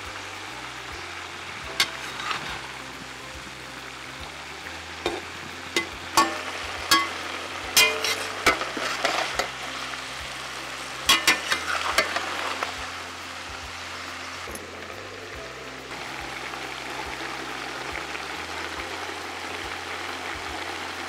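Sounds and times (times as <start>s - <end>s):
vegetables sizzling: 0.0s - 21.0s
spatula clanking on metal pan: 5.1s - 9.6s, 11.1s - 12.4s.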